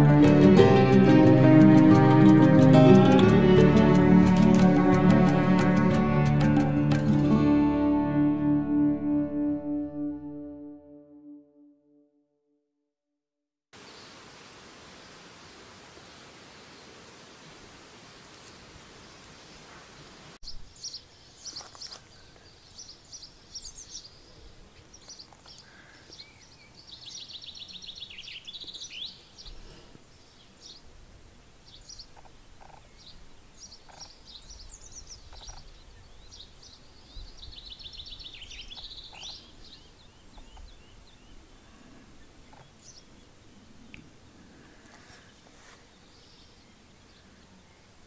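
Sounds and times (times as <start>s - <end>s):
steady hiss: 13.8s - 21.5s
birds chirping: 20.4s - 30.9s, 31.7s - 43.9s.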